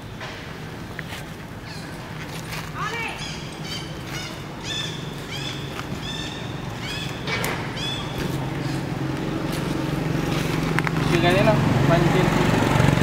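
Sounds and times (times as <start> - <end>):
steady low hum: 0.0 - 13.0
baby monkey squealing: 3.1 - 8.9.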